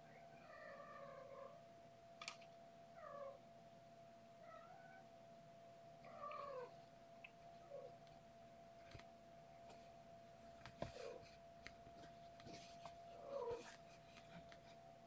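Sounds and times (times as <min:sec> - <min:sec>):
cat meowing faintly: 0:06.1 - 0:06.8, 0:13.2 - 0:13.8.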